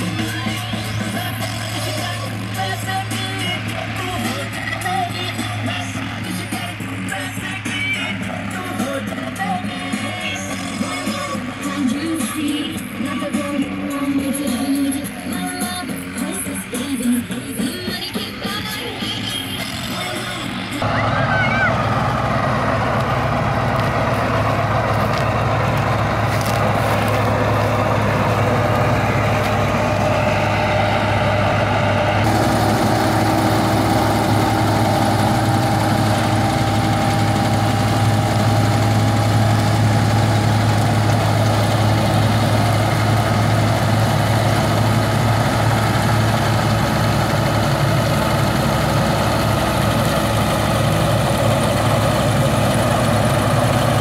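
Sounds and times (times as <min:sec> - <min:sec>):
steady machine whine: 0:00.0 - 0:54.0
tractor diesel engine drone: 0:00.0 - 0:54.0.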